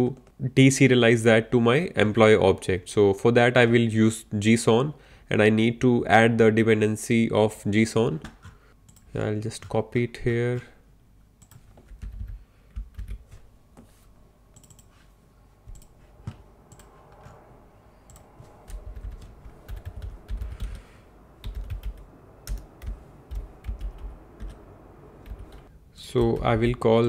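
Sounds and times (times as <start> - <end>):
computer keyboard typing: 11.4 - 13.3, 14.6 - 14.9, 15.7 - 17.4, 18.1 - 20.8, 21.4 - 24.6, 25.2 - 26.8.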